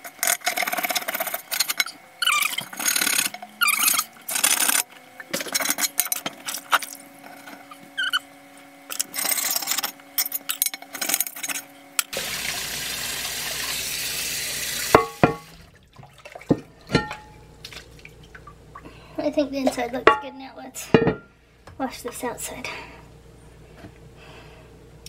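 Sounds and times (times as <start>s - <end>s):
tap water running: 12.1s - 18.9s.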